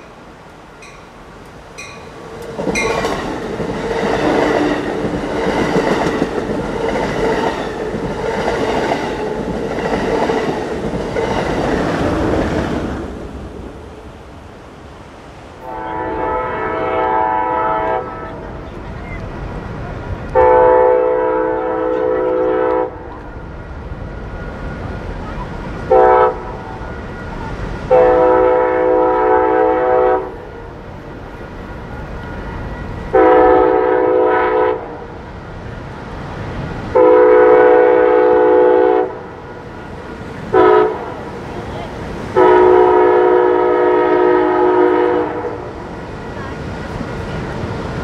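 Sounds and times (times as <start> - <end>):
train low rumble: 0.0 - 48.0
train air horn blasts: 15.6 - 18.4, 20.4 - 23.1, 25.9 - 26.6, 27.9 - 30.4, 33.1 - 35.0, 36.9 - 39.3, 40.5 - 41.1, 42.4 - 45.7.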